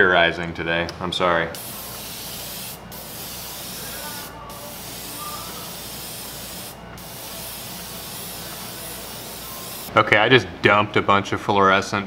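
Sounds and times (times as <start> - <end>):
airbrush spraying hiss: 1.6 - 9.9.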